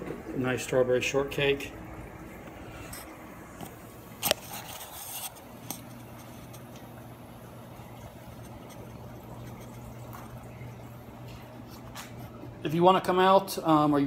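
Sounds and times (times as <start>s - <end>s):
aquarium equipment humming: 0.0s - 14.0s
scraping rustle: 4.2s - 6.7s.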